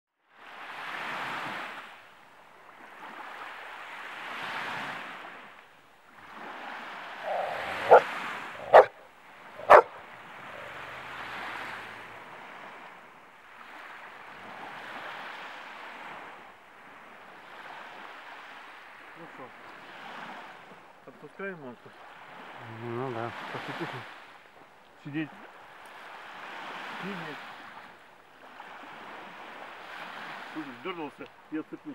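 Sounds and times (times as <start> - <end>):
waves washing onto beach: 0.3 - 31.9
dog barking: 7.2 - 10.9.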